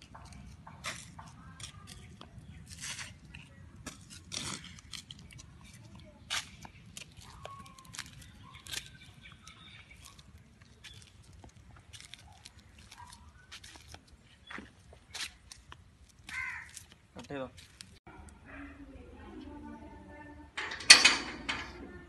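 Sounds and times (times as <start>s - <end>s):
bird chirps: 6.5s - 11.1s.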